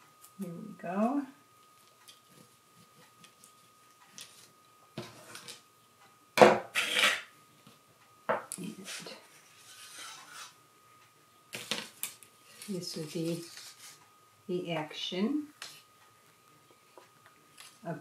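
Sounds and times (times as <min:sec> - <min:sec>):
faint high hum: 0:00.0 - 0:18.0
paper puppet rustling: 0:12.5 - 0:14.0.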